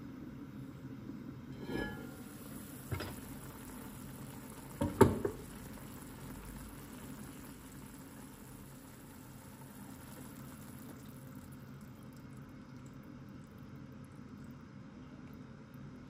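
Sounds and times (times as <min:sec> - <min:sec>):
stew simmering: 0:00.2 - 0:16.0
metal lid scraping: 0:01.5 - 0:02.4.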